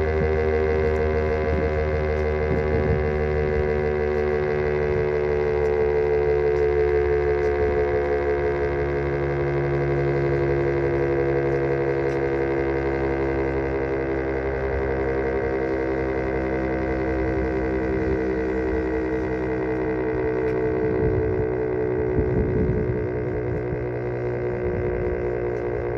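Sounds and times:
warning siren steady tone: 0.0s - 25.9s.

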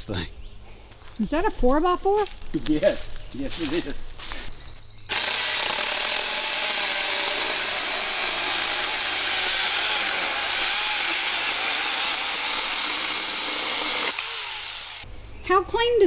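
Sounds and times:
chainsaw cutting wood: 5.1s - 15.1s.

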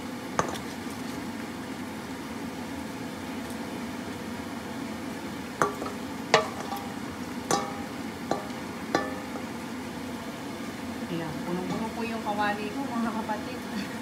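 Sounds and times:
vegetables sizzling in a pan: 0.0s - 14.0s.

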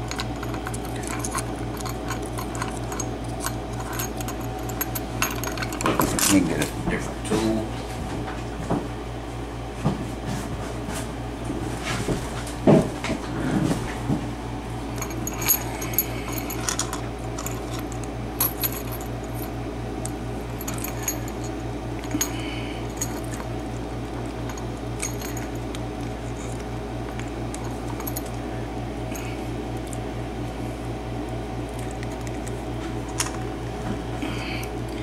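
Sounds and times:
keys jingling: 0.0s - 6.5s, 15.0s - 19.5s, 20.6s - 23.5s, 24.3s - 26.6s, 27.5s - 28.4s
steady low hum: 0.0s - 35.0s.

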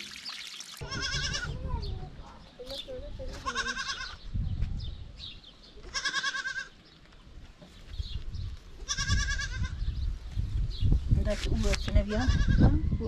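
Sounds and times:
goat bleating: 0.8s - 1.6s, 3.4s - 4.2s, 5.8s - 6.8s, 8.8s - 9.8s.

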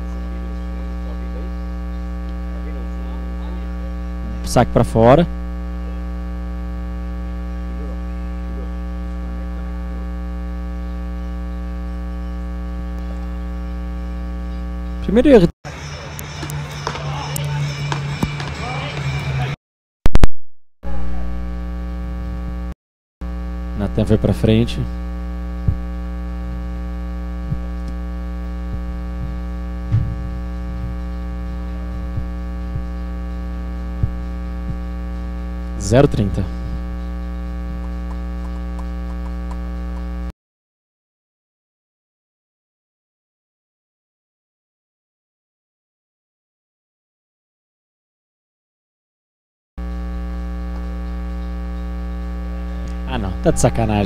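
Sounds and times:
electrical mains hum: 0.0s - 19.6s, 20.8s - 40.3s, 49.8s - 54.0s
faint wavering sounds: 27.3s - 39.0s.

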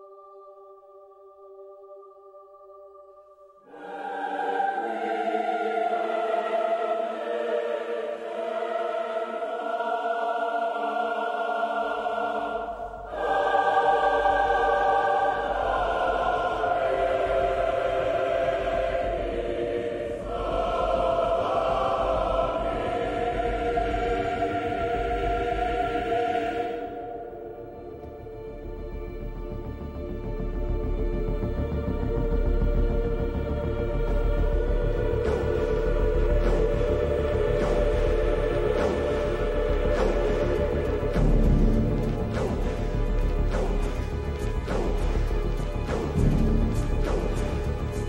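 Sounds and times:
orchestral music with choir: 0.0s - 48.0s.

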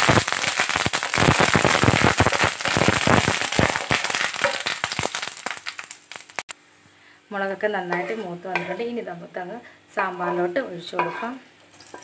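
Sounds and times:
leaves crackling in hot oil: 0.0s - 6.5s, 10.0s - 12.0s.

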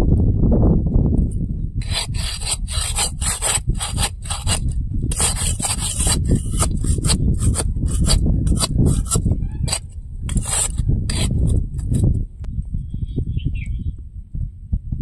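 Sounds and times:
metal spatula scraping a pan: 1.8s - 12.0s.

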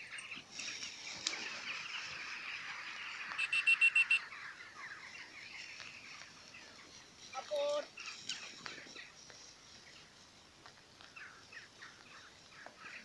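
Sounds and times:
dry grass rustling: 0.0s - 13.0s
bird high chirps: 1.3s - 10.0s.

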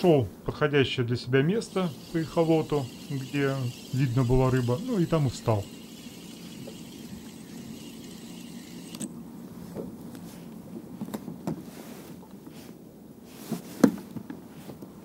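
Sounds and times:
fishing reel whirring: 1.6s - 9.2s.

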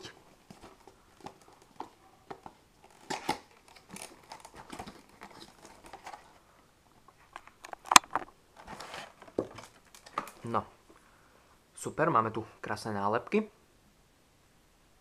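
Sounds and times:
cardboard box rustling and scraping: 8.6s - 9.8s.

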